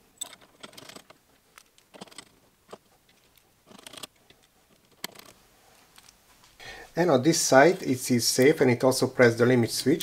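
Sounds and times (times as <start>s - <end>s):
screwdriver clicking and scraping: 0.2s - 5.4s.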